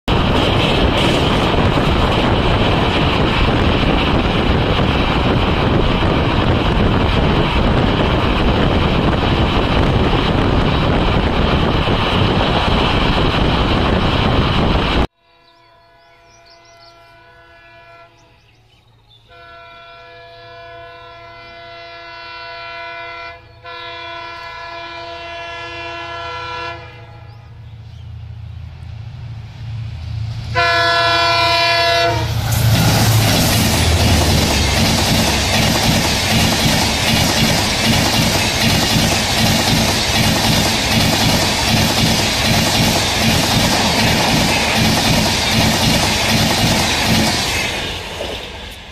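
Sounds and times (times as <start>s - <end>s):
train rushing past: 0.1s - 15.1s, 24.9s - 48.9s
locomotive horn blasts: 15.2s - 18.4s, 19.3s - 27.4s, 30.5s - 32.4s.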